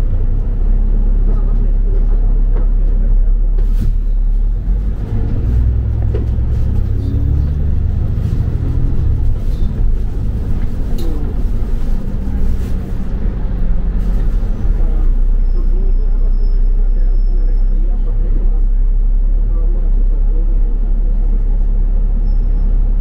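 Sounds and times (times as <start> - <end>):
bus engine drone: 0.0 - 23.0
road rumble: 0.0 - 23.0.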